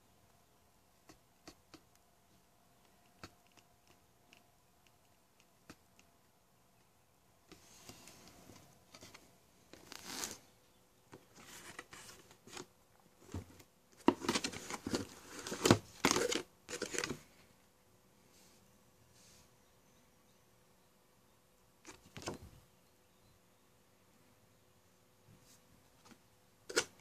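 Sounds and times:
cardboard and paper rustling: 0:11.2 - 0:17.2.

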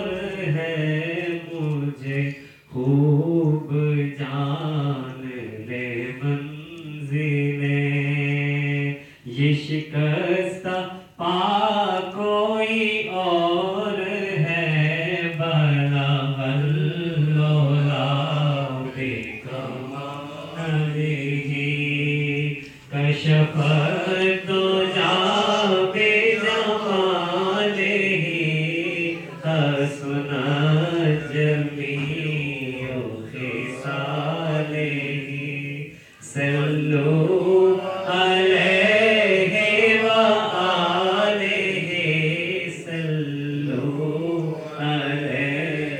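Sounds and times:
man chanting into microphone: 0:00.0 - 0:45.9.

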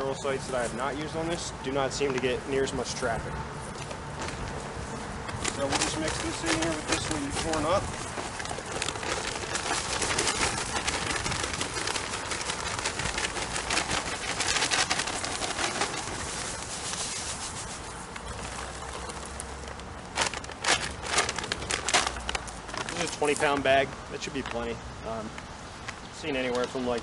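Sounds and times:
bag crackling: 0:04.2 - 0:24.7
granules pouring onto soil: 0:05.4 - 0:24.8.

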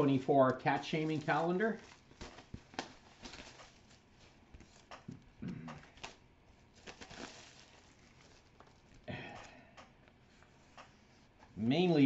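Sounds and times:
plastic wrap crinkling: 0:00.0 - 0:09.1.

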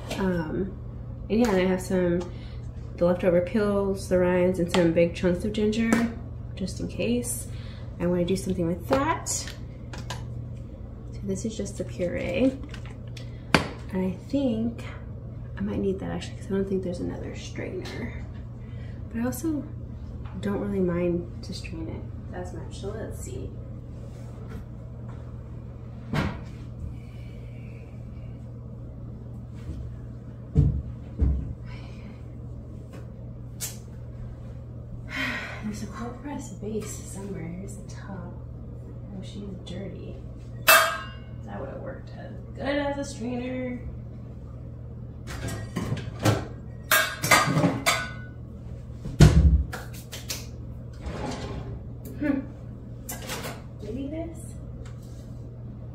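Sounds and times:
steady low hum: 0:00.0 - 0:55.9
kitchenware knocking and clattering: 0:47.0 - 0:48.3.

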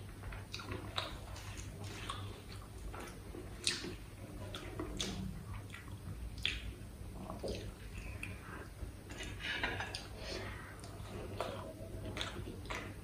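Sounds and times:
wet chewing and mouth smacks: 0:00.3 - 0:10.2, 0:10.8 - 0:13.0
sharp mouth clicks: 0:04.6 - 0:06.7.

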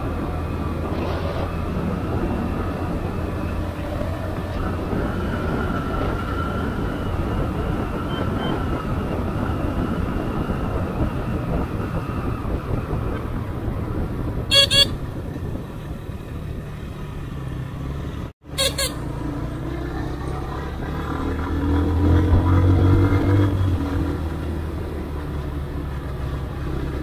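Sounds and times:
wind rush: 0:00.0 - 0:16.7
motorcycle engine: 0:00.0 - 0:27.0
horn beeps: 0:14.5 - 0:15.0, 0:18.5 - 0:19.1.

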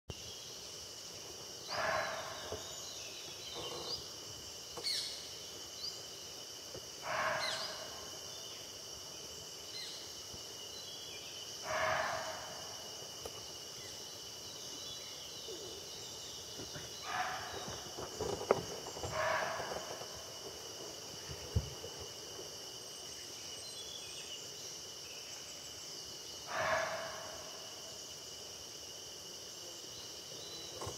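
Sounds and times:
insect drone: 0:00.1 - 0:30.9
deer alarm barks: 0:01.7 - 0:02.5, 0:07.1 - 0:08.0, 0:11.7 - 0:12.6, 0:19.1 - 0:19.7, 0:26.5 - 0:27.4.

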